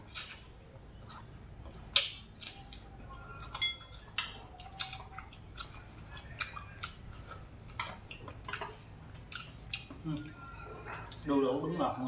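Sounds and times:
mouth smacks while chewing: 0:00.1 - 0:10.4
spoon clinking: 0:03.5 - 0:04.1.

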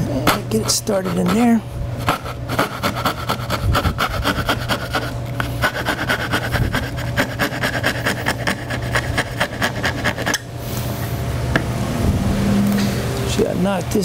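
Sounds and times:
fine saw rasping through wood: 0:00.1 - 0:10.5.

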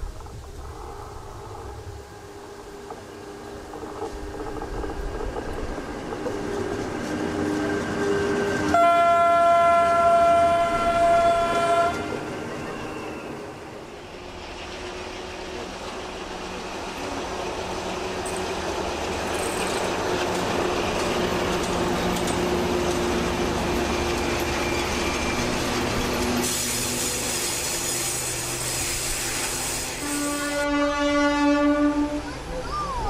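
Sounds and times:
diesel locomotive engine drone: 0:00.0 - 0:33.0
rail noise: 0:00.0 - 0:33.0
locomotive horn: 0:08.2 - 0:12.9, 0:29.9 - 0:32.3.

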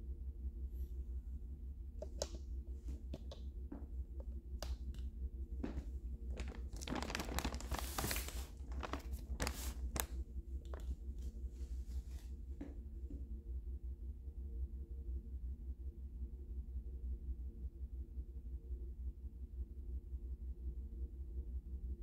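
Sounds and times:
steady low hum: 0:00.0 - 0:22.0
plastic package crinkling: 0:05.6 - 0:11.0.

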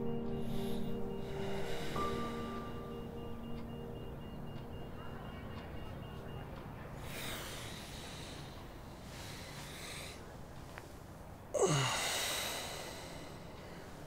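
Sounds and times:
person breathing: 0:00.4 - 0:02.8, 0:07.0 - 0:10.8, 0:11.6 - 0:14.0.

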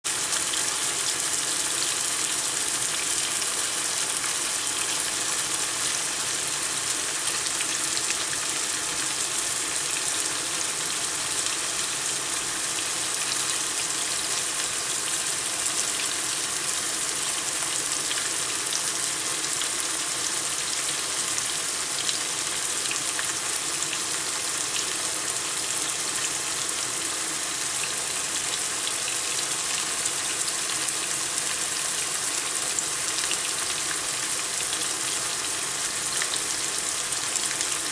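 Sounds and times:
meat sizzling with pops: 0:00.1 - 0:37.9.

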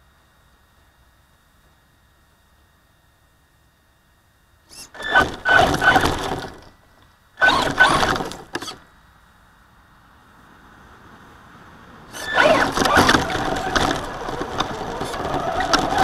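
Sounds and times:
rc truck motor revving: 0:04.7 - 0:06.7, 0:07.4 - 0:08.9, 0:12.1 - 0:16.0
tyres churning through gravel: 0:04.7 - 0:06.8, 0:07.4 - 0:08.8, 0:10.9 - 0:16.0.

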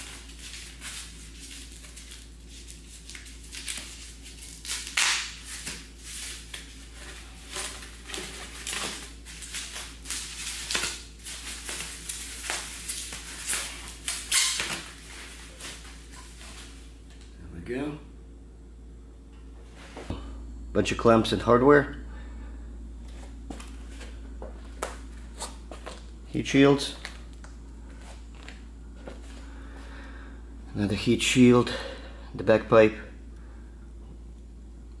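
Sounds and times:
packing material rustling: 0:00.0 - 0:16.8
steady low hum: 0:00.0 - 0:35.0.

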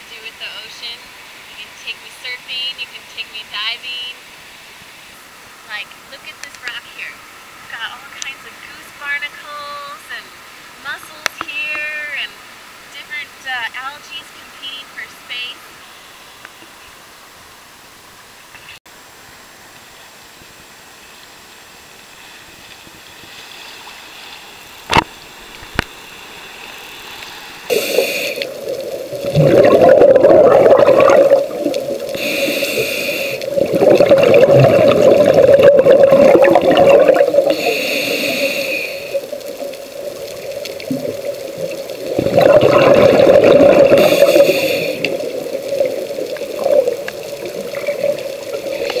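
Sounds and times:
diver breathing through regulator: 0:27.7 - 0:28.6, 0:32.1 - 0:33.7, 0:37.4 - 0:39.3, 0:43.3 - 0:45.2
bubbling exhale: 0:27.7 - 0:49.0.

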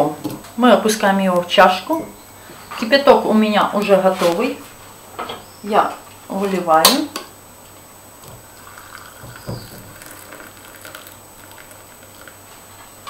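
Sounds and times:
water pouring from a kettle: 0:08.3 - 0:12.6.

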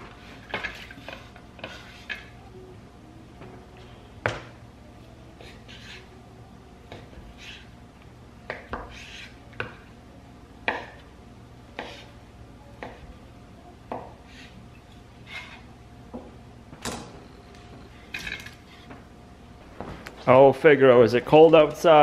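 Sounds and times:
knife scraping board: 0:00.2 - 0:02.3, 0:05.4 - 0:06.1, 0:07.3 - 0:07.7, 0:08.5 - 0:09.4, 0:11.8 - 0:12.1, 0:14.2 - 0:14.6, 0:15.2 - 0:15.7
knife chopping on wooden board: 0:10.7 - 0:11.0.

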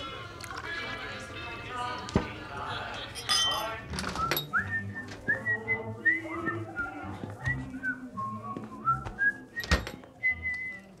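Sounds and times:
person whistling a slow tune: 0:07.5 - 0:10.9.

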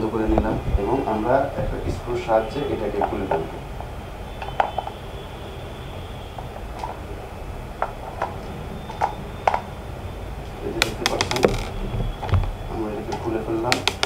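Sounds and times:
rattling clicks: 0:10.8 - 0:11.8.

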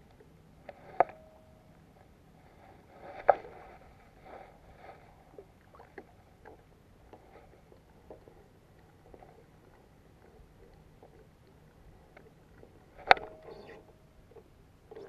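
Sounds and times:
fishing rod and reel clicks: 0:13.0 - 0:13.8.

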